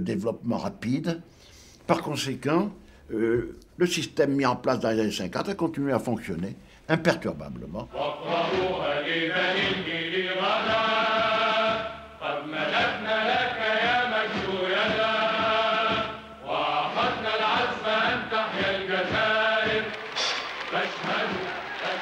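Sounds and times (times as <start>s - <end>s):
singer breathing: 1.3s - 1.9s, 2.8s - 3.1s, 6.6s - 6.9s
person singing chant-like song: 7.9s - 22.0s.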